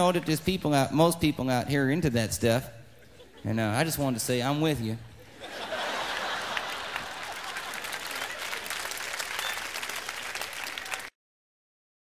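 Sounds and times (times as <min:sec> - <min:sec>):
audience applauding: 0:05.8 - 0:11.1.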